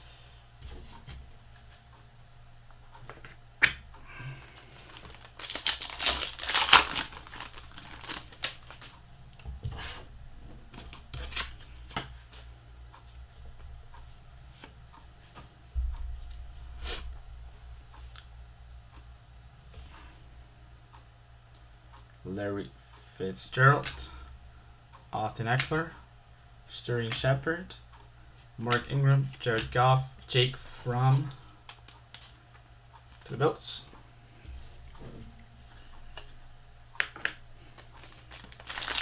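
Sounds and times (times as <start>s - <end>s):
cards clicking and rustling: 4.5s - 9.0s, 10.7s - 12.4s, 31.0s - 33.4s, 37.0s - 39.0s
plastic wrapper ripping and crinkling: 4.7s - 9.0s, 37.8s - 39.0s.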